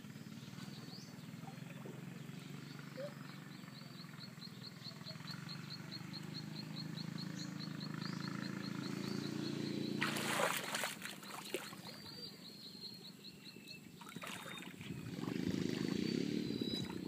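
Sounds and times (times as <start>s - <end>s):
low motor hum: 0.0s - 17.0s
person wading into water: 10.0s - 12.0s, 14.0s - 15.4s.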